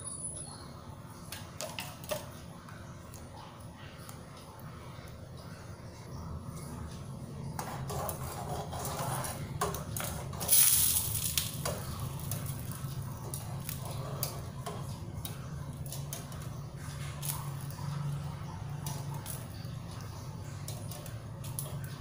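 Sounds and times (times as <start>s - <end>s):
whisk scraping a metal pan: 7.6s - 12.4s.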